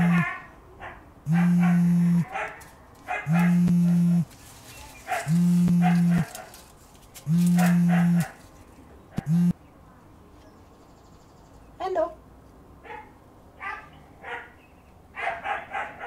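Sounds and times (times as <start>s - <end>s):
phone buzzing: 0.0s - 0.2s, 1.3s - 2.3s, 3.3s - 4.3s, 5.2s - 6.4s, 7.3s - 8.4s, 9.2s - 9.6s.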